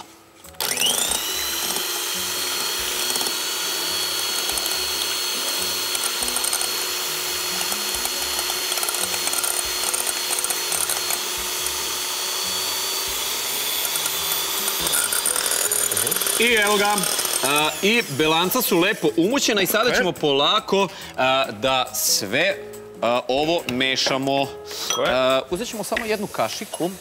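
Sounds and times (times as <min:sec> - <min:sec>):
electric hand mixer whining: 0:00.0 - 0:19.9.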